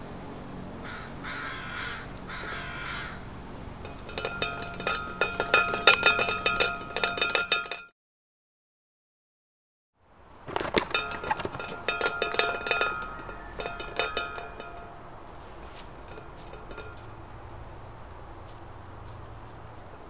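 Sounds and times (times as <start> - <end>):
metal feeder rattling: 3.8 - 7.9, 10.5 - 15.1, 15.8 - 17.1.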